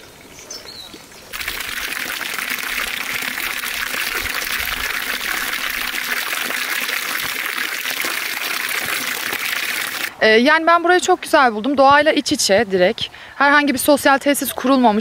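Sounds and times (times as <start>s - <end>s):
water pouring into trough: 1.3s - 10.2s.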